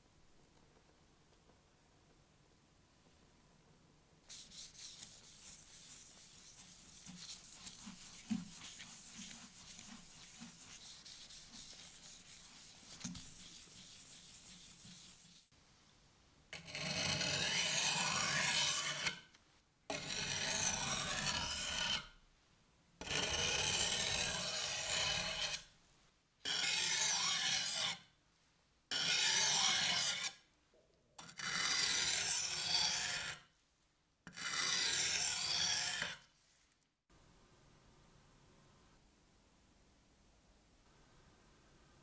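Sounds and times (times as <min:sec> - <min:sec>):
knife scraping on whetstone: 0:04.3 - 0:15.5, 0:16.6 - 0:19.3, 0:19.9 - 0:22.1, 0:23.0 - 0:25.7, 0:26.5 - 0:28.0, 0:28.9 - 0:30.4, 0:31.2 - 0:33.4, 0:34.3 - 0:36.3.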